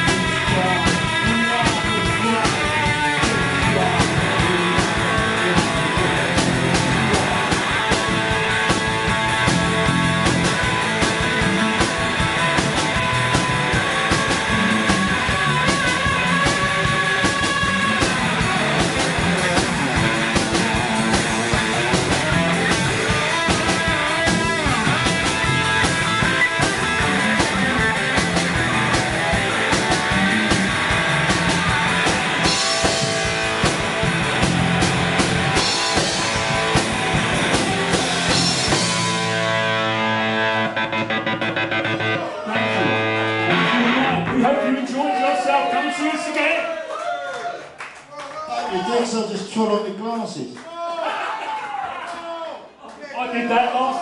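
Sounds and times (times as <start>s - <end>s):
drum kit: 0.0s - 44.5s
electric guitar: 0.0s - 44.8s
bass guitar: 0.0s - 46.0s.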